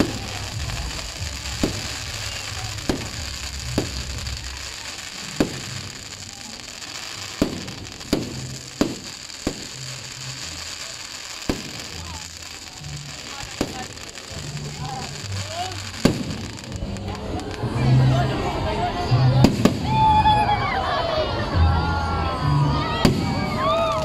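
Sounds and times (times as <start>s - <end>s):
firework shells bursting with bangs: 0.0s - 17.2s.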